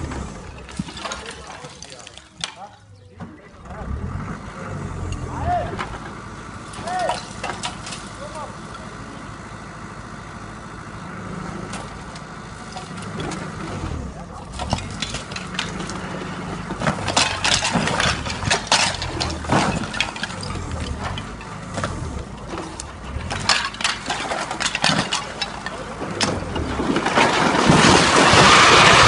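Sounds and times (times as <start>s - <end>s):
building collapsing crash: 0.0s - 2.7s, 12.7s - 29.0s
walls cracking and crashing: 0.0s - 2.7s, 12.7s - 29.0s
diesel engine under load: 0.0s - 29.0s.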